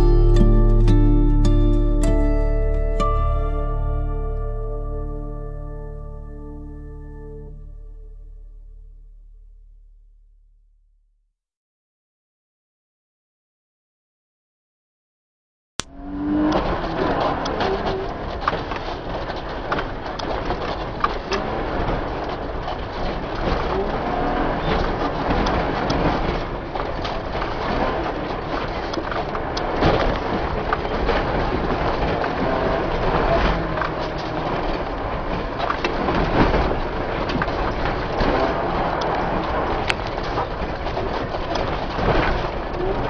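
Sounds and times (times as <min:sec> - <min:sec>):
vehicle engine and road noise: 0:15.8 - 0:43.0.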